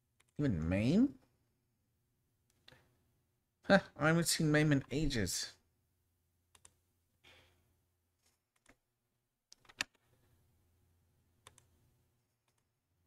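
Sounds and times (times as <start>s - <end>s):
computer mouse and keyboard clicks: 8.2s - 8.8s, 9.5s - 10.0s, 12.4s - 12.7s.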